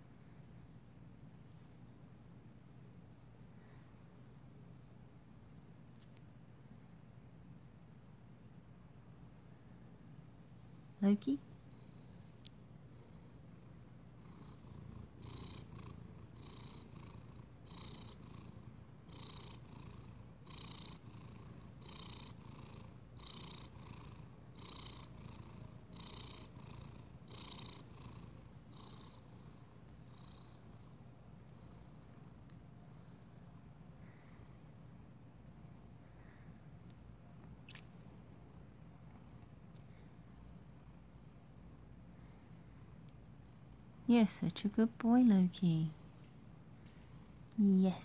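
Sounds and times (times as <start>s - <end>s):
cat purring: 10.4s - 48.0s.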